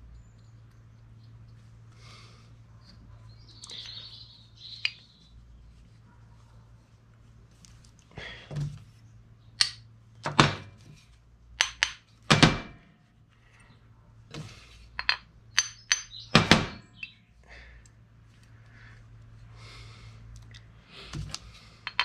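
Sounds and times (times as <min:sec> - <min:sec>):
steel parts knocking and clinking: 0:09.6 - 0:10.8, 0:11.6 - 0:12.9, 0:15.0 - 0:17.2, 0:21.3 - 0:22.0.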